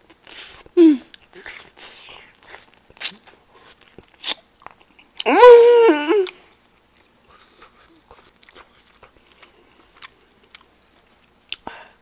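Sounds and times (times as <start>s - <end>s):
person chewing food: 0.0s - 5.3s, 6.2s - 11.7s
person humming mmm: 0.5s - 2.1s, 5.2s - 6.4s.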